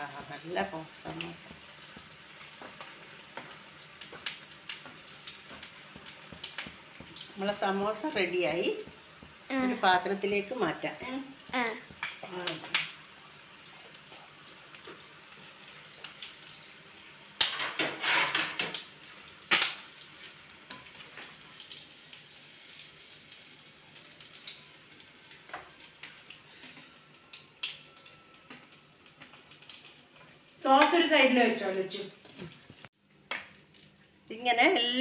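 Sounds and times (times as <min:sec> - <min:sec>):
food deep-frying in oil: 0:00.0 - 0:35.0
metal spoon scraping a pan: 0:17.6 - 0:18.7.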